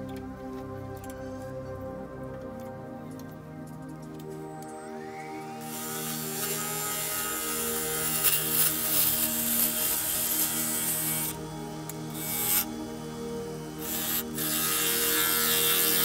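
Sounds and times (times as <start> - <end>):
wood lathe whine: 4.6 - 16.0.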